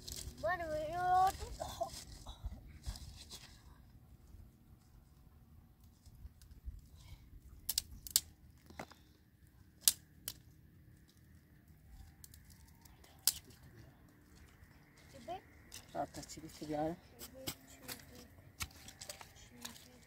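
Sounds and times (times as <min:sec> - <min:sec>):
twigs snapping: 0:07.6 - 0:09.0, 0:09.8 - 0:11.2, 0:12.1 - 0:13.7.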